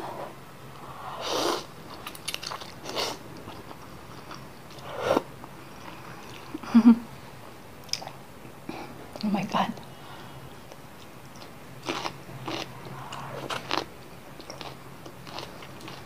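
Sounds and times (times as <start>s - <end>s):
chewing: 1.9s - 4.8s, 10.7s - 16.0s.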